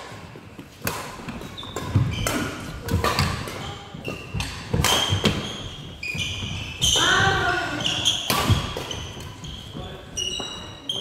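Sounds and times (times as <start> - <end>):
racket hitting shuttlecock: 0.0 - 7.0, 8.1 - 9.3
shoes squeaking on floor: 0.5 - 11.0.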